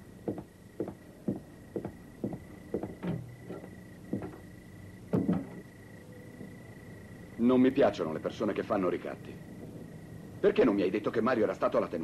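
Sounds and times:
footsteps on hard floor: 0.3s - 4.5s.

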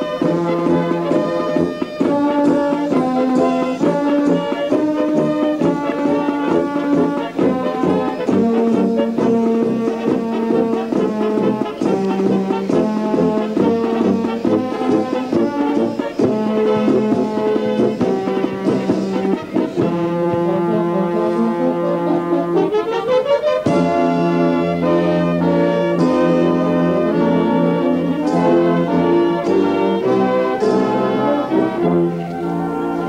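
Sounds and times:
brass band playing: 0.0s - 33.0s.

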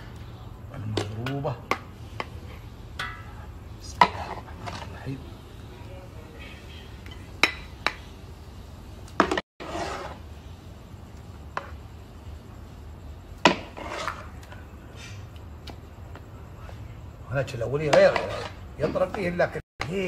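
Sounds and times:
low steady hum: 0.0s - 9.4s.

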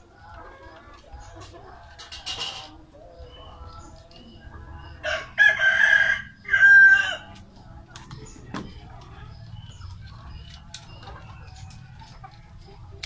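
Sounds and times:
hens clucking: 0.0s - 13.0s
rooster crowing: 5.0s - 7.4s.

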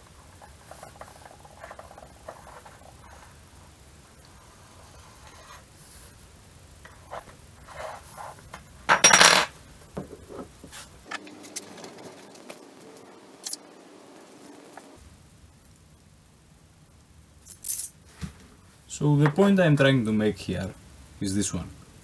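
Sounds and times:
metal pieces clattering onto table: 8.9s - 9.5s.

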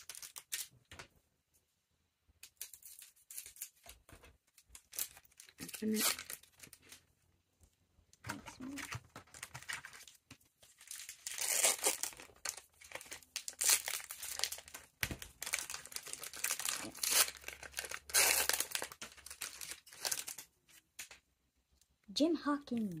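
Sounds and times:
foil wrapper crinkling and tearing: 0.0s - 0.8s, 2.5s - 7.0s, 8.4s - 21.2s.

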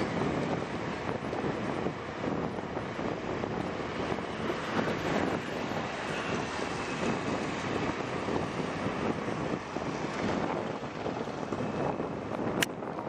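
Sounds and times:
motorbike engine and road noise: 0.0s - 13.0s
wind rushing on microphone: 0.0s - 13.0s.

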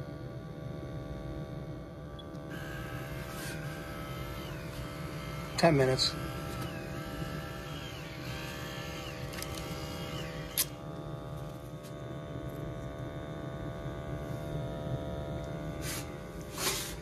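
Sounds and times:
gas boiler humming: 0.8s - 17.0s
hose rustling: 15.8s - 17.0s.

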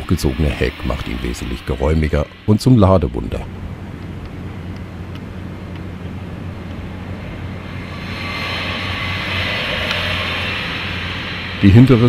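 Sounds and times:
car engine hum: 0.0s - 12.0s.

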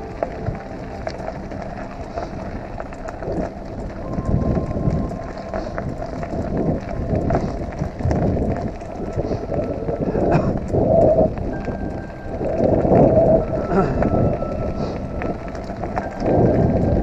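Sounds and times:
bike tyres crunching on gravel: 0.0s - 17.0s
wind on microphone: 0.0s - 17.0s.

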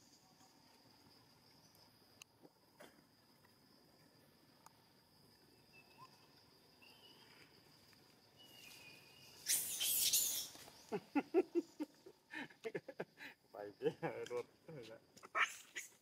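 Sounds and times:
insects trilling: 0.0s - 16.0s
faint short high calls: 8.4s - 10.7s.

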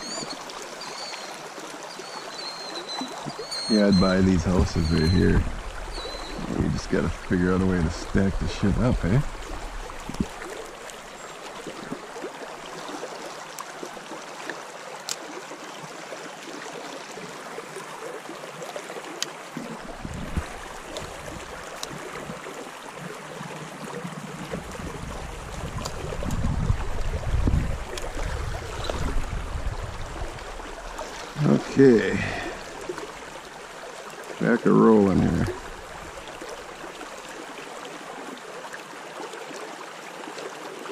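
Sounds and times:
rocky stream rushing: 0.0s - 40.9s
faint ticks: 19.2s - 19.4s.

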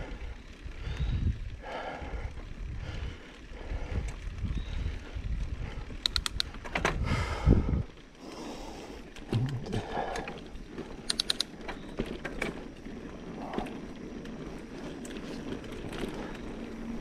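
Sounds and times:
wind buffeting microphone: 0.0s - 11.0s
bike tyres rumbling on dirt: 0.0s - 17.0s
sharp clicks: 6.0s - 6.8s, 11.0s - 11.8s.

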